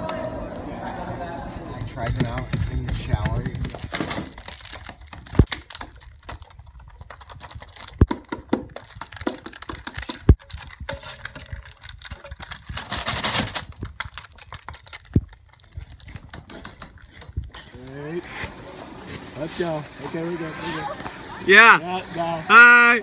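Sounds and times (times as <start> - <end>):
household objects clattering: 2.0 - 17.9.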